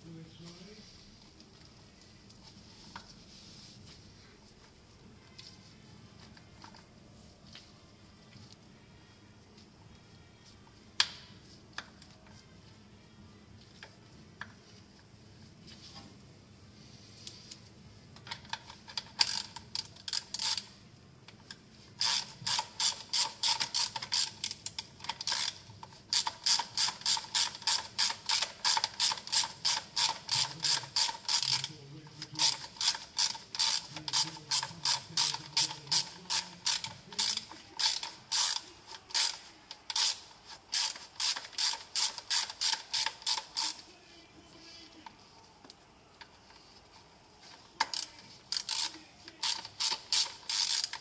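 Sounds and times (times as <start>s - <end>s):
ratchet wrench clicking: 18.9s - 20.7s, 22.0s - 31.7s, 32.4s - 43.8s, 47.8s - 51.0s.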